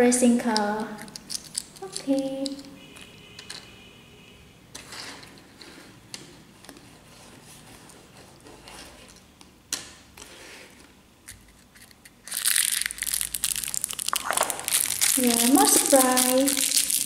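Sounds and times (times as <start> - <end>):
plastic toys clicking and scraping: 0.4 - 3.7, 4.7 - 6.8, 10.2 - 17.0
plastic packet crinkling: 12.2 - 17.0.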